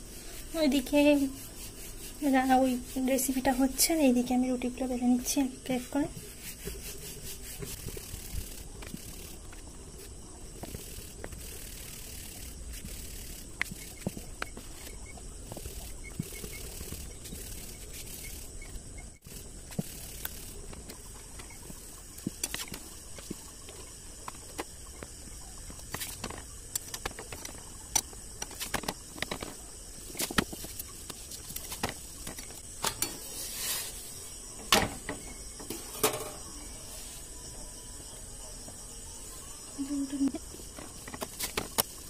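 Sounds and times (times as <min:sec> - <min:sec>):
steady background hiss: 0:00.0 - 0:42.0
kitchen utensils clicking and knocking: 0:32.3 - 0:33.4, 0:34.6 - 0:36.5.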